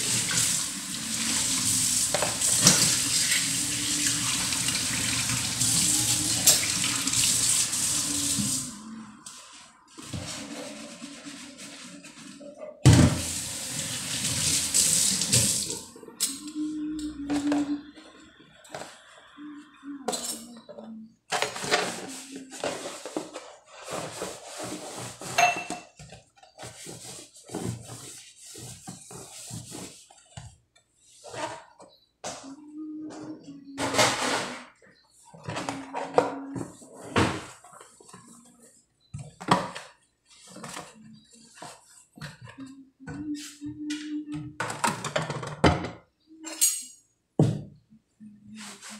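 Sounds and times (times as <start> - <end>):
tap water running into sink: 0.0 - 8.7, 13.1 - 15.8.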